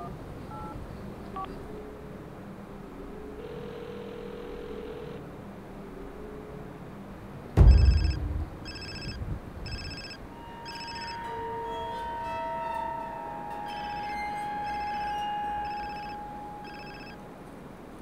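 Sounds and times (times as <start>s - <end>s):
smartphone ringing: 3.4s - 5.2s, 7.9s - 11.4s, 13.7s - 17.2s
steady held music tones: 5.0s - 18.0s
heavy low thud: 7.6s - 10.0s.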